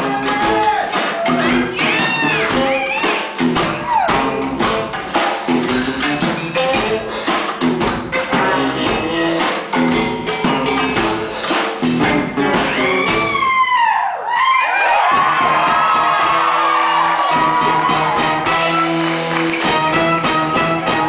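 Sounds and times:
rhythmic percussive clatter: 0.0s - 13.4s.

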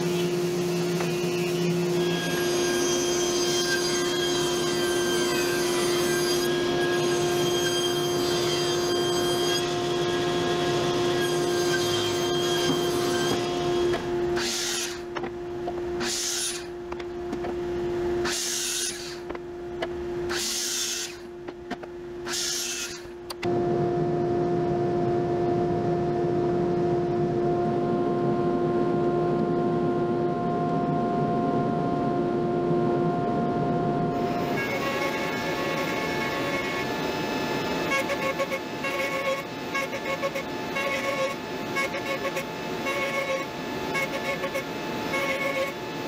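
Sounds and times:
power tool high-pitched hum: 0.0s - 46.0s
low rumble: 23.5s - 34.2s.

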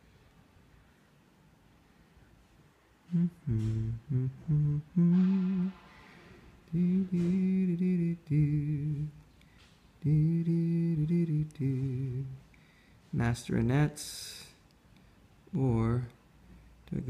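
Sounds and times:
man humming: 3.1s - 5.8s, 6.6s - 9.2s, 10.0s - 12.4s.

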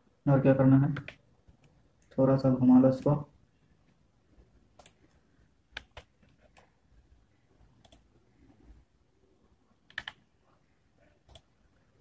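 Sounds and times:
computer mouse clicks: 4.7s - 5.1s, 5.7s - 6.8s, 7.8s - 8.2s, 9.8s - 10.2s, 11.2s - 11.5s.

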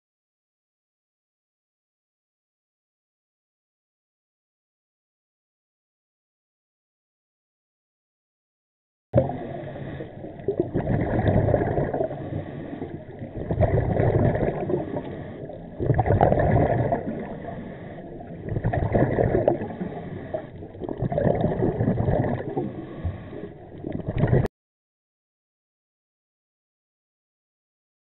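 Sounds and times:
regulator bubbles gurgling underwater: 9.2s - 24.5s.

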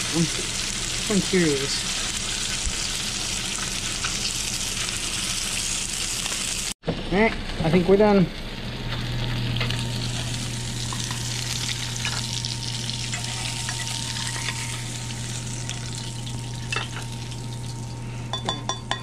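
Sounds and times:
fish sizzling in a frying pan: 0.0s - 6.8s, 8.4s - 18.1s
low steady hum: 6.9s - 19.0s.

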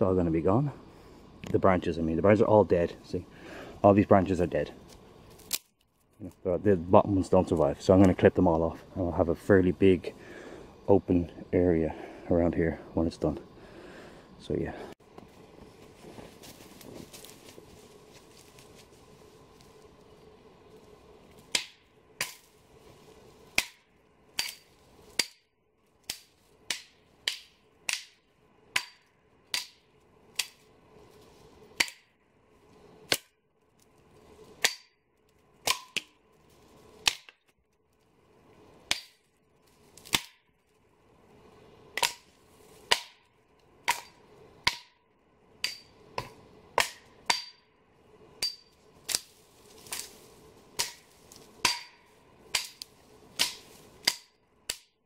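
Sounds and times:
dry branches snapping: 4.9s - 6.4s, 21.3s - 22.6s, 23.4s - 25.4s, 26.0s - 30.7s, 33.0s - 38.0s, 38.8s - 40.7s, 41.9s - 44.9s, 48.4s - 55.0s.

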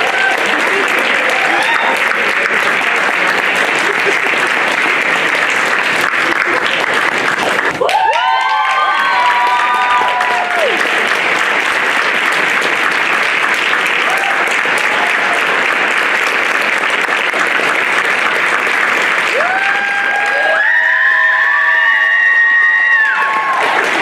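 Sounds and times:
whoops and cheers: 0.0s - 2.2s, 7.8s - 10.9s, 14.0s - 15.4s, 19.3s - 24.0s
audience applauding: 0.0s - 24.0s.

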